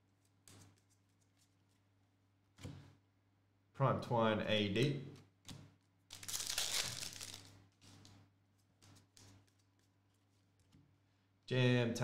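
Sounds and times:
foil wrapper crinkling: 6.1s - 7.5s
cards rustling: 6.1s - 10.7s.

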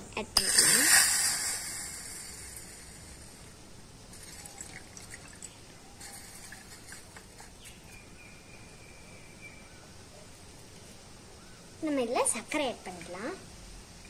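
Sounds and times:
water trickling into a small pot: 4.1s - 7.7s.

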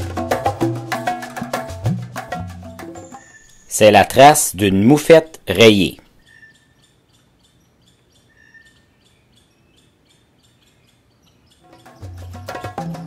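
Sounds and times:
high chirping: 2.8s - 13.0s.

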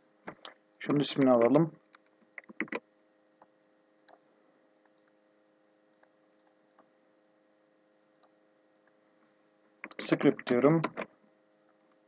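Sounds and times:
faint steady hum: 0.0s - 12.0s
mouse and keyboard clicks: 1.4s - 2.8s, 9.8s - 10.0s.

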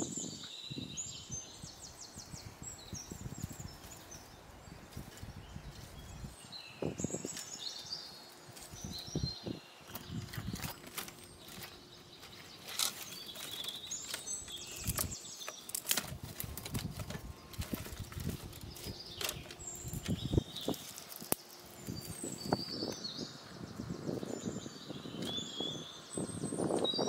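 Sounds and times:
birds chirping: 0.0s - 27.0s
rustling and scraping of wood: 3.1s - 23.0s
dry twigs snapping: 9.9s - 22.2s.

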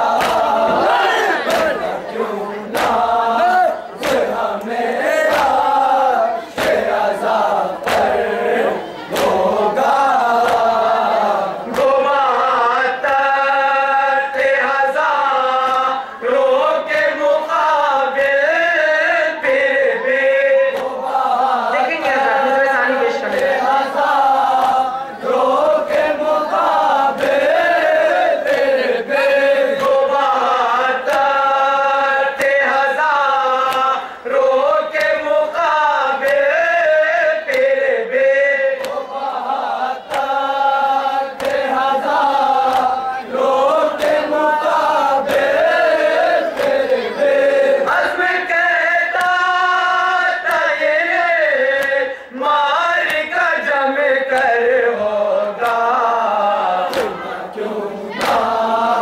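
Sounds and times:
hands slapping on chests: 0.0s - 2.0s, 2.7s - 12.2s, 15.6s - 16.0s, 20.7s - 22.3s, 23.2s - 34.0s, 34.9s - 35.5s, 36.2s - 36.5s, 37.5s - 37.8s, 38.8s - 48.2s, 49.1s - 49.6s, 50.4s - 50.8s, 51.7s - 52.0s, 53.0s - 53.4s, 54.3s - 54.6s, 55.4s - 55.9s, 56.8s - 57.3s, 58.1s - 59.0s
group of men chanting a lament: 0.0s - 59.0s
lead reciter singing: 0.0s - 59.0s.

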